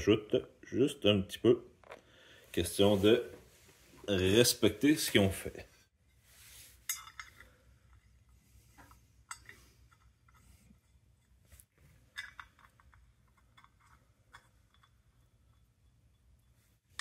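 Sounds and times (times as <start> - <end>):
metal bolt clicks and scrapes: 6.8 - 17.0.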